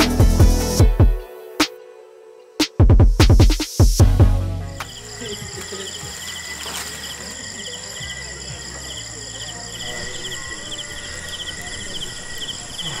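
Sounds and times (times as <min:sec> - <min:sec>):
night insects chirping: 0:04.7 - 0:13.0.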